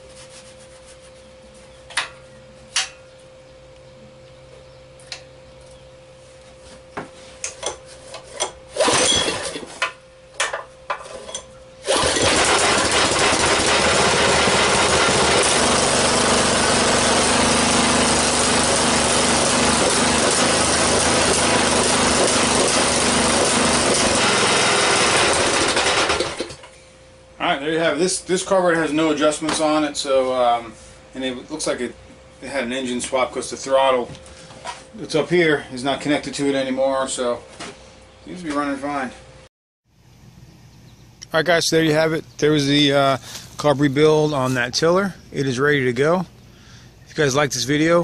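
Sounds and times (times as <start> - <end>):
small engine running: 8.7 - 9.8, 11.8 - 26.6
pull-starter clicks: 11.2 - 16.1.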